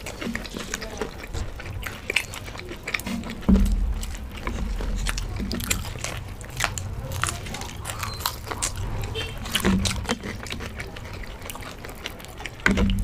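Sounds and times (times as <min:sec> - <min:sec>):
crisp chewing crunches: 0:00.0 - 0:13.0
dull low thump: 0:03.2 - 0:06.8.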